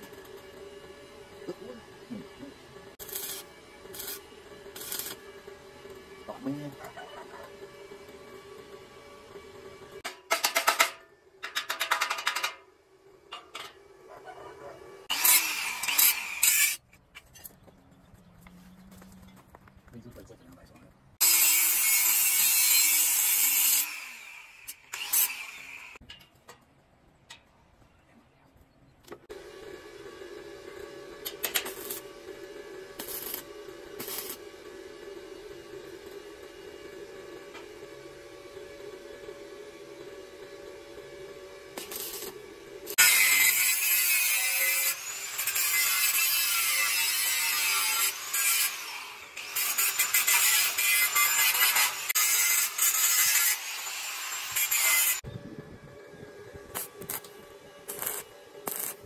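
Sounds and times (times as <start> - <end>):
angle grinder cutting steel: 0.0 - 16.8, 21.2 - 26.0, 29.3 - 55.3, 56.4 - 59.0
metal scrape: 2.9 - 12.6, 31.2 - 38.1, 40.4 - 55.2, 56.6 - 59.0.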